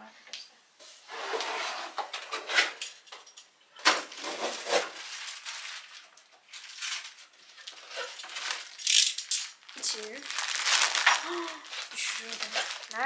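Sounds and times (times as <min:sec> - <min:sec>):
cardboard rustling and scraping: 0:11.8 - 0:13.0.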